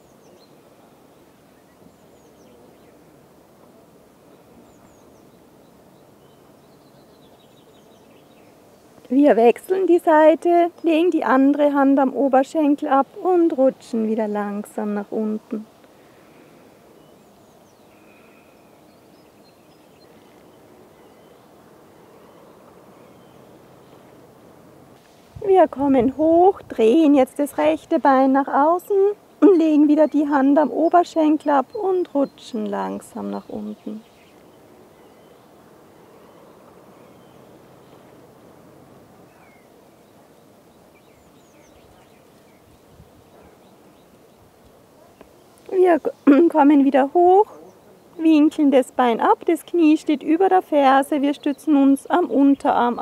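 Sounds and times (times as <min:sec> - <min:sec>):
low steady outdoor rush: 0:00.0 - 0:53.0
faint bird chirps: 0:15.6 - 0:24.2, 0:28.8 - 0:38.2, 0:39.2 - 0:48.5.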